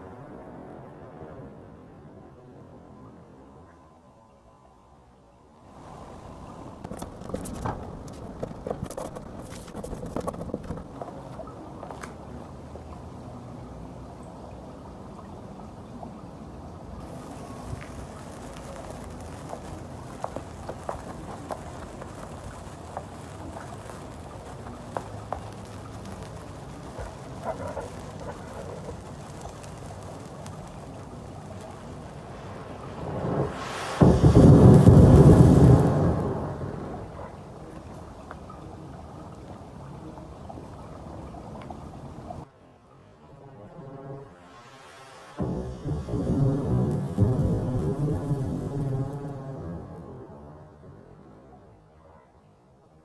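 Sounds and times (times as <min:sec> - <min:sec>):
background noise: 0:00.0 - 0:53.0
burning matches crackling: 0:05.8 - 0:12.2, 0:17.0 - 0:36.3, 0:45.4 - 0:49.7.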